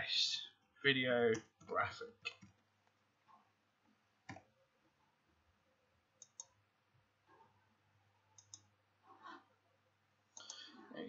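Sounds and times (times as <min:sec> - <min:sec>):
computer mouse clicks: 0:04.2 - 0:04.5, 0:06.2 - 0:06.6, 0:08.3 - 0:08.7, 0:10.4 - 0:10.7.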